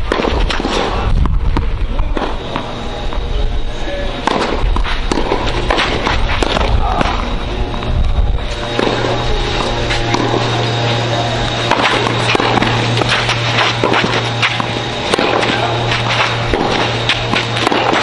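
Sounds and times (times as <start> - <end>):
steady low rumble: 0.0 - 18.0
tennis balls struck by rackets: 4.2 - 8.0, 8.6 - 18.0.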